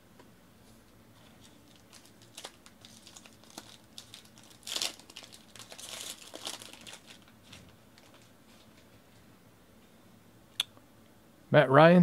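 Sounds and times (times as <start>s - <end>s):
foil wrapper crinkling and tearing: 1.7s - 8.3s.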